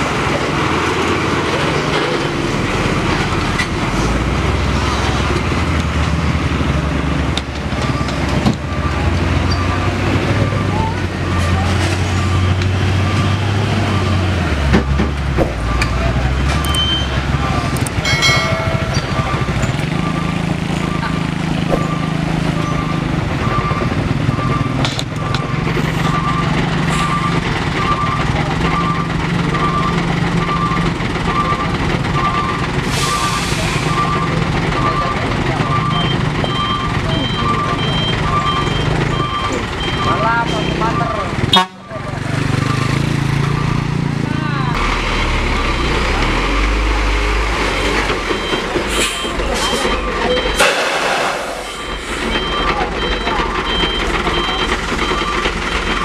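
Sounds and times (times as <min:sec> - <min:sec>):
diesel truck engine droning: 0:00.0 - 0:56.0
reversing alarm beeping: 0:07.7 - 0:44.1, 0:47.8 - 0:56.0
loud hiss: 0:50.6 - 0:51.8.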